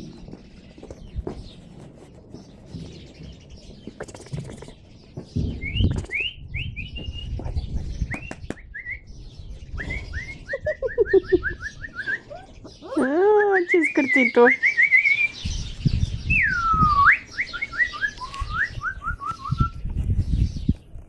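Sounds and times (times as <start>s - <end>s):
puppies squealing: 10.5s - 13.2s.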